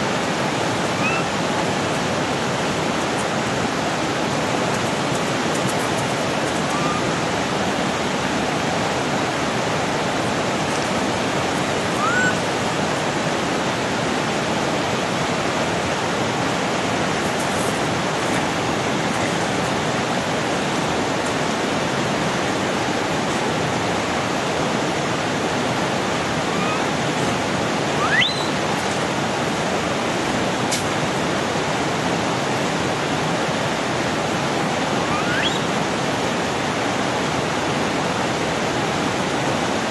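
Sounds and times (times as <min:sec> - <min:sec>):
flowing water rushing: 0:00.0 - 0:39.9
high rising chirps: 0:28.0 - 0:28.5.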